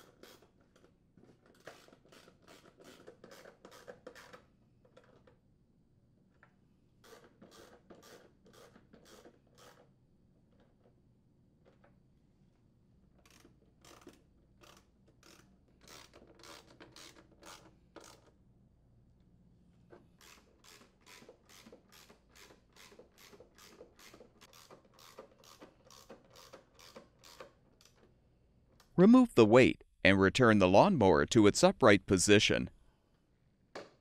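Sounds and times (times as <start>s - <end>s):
hand ratchet clicking: 20.2s - 28.0s.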